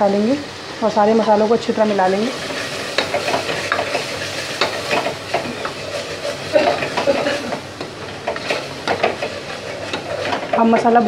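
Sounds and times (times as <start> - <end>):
masala sizzling in oil: 0.0 - 11.0
wooden spatula scraping pot: 2.3 - 11.0.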